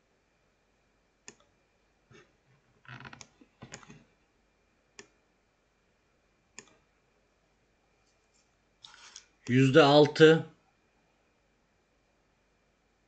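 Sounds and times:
computer mouse clicks: 1.2s - 1.5s, 2.9s - 4.0s, 5.0s - 5.2s, 6.6s - 6.8s.

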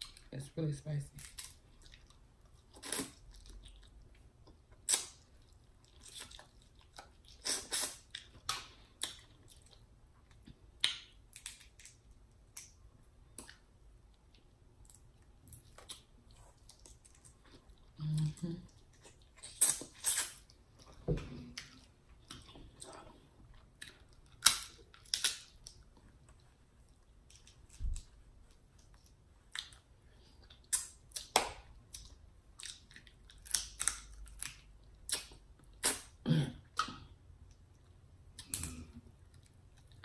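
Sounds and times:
chewing and lip smacks: 1.3s - 18.0s, 18.6s - 31.3s.

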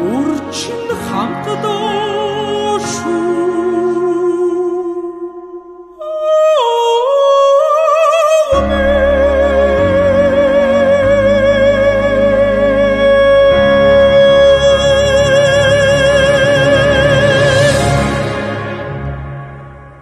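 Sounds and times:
woman singing operatically: 6.0s - 17.8s
musical accompaniment with low bass: 8.5s - 20.0s.

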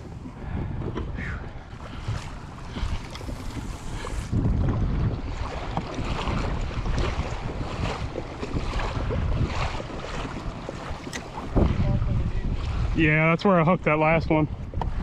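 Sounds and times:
water splashing along hull: 0.0s - 15.0s
wind buffeting microphone: 0.0s - 15.0s.

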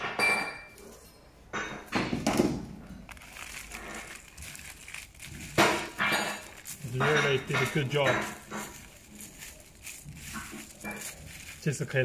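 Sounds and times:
cardboard pieces rustling and clicking: 2.2s - 12.0s.

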